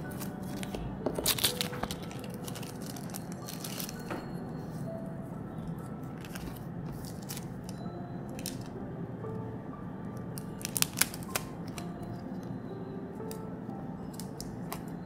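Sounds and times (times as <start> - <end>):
plastic and paper crinkling: 0.0 - 4.8, 6.1 - 8.7, 10.4 - 12.2
sharp crackling clicks: 10.4 - 11.9.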